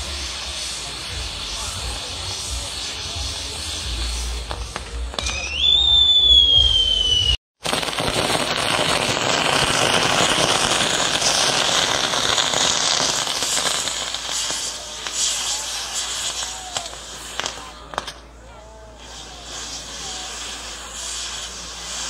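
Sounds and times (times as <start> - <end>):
firework whistle sliding down: 0.0 - 7.4, 9.3 - 18.2
fireworks crackling and hissing: 0.0 - 22.0.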